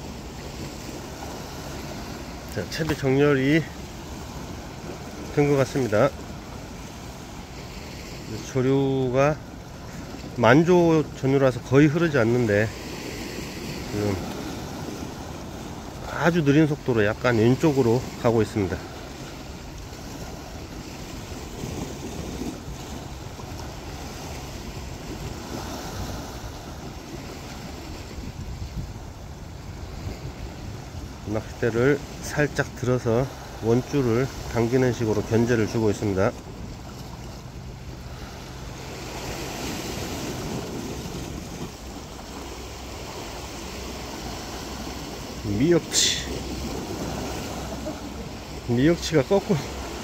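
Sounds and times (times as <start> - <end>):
small waves against rocks: 0.0 - 50.0
wind on microphone: 19.5 - 31.4.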